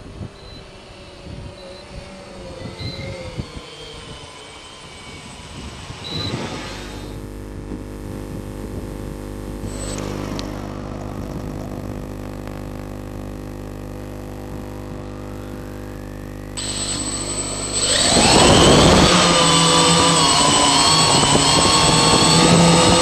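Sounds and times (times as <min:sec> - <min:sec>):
drone motors buzzing: 0:00.0 - 0:23.0
high whine: 0:00.0 - 0:23.0.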